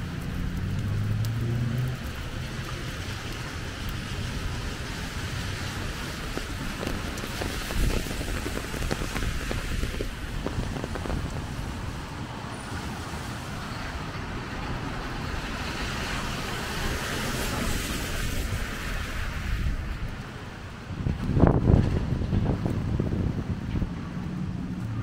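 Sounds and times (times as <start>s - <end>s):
rain on wet street: 0.0s - 25.0s
traffic noise on wet road: 0.0s - 25.0s
wind rumbling on microphone: 0.0s - 25.0s
car tyres hissing past: 15.1s - 19.8s.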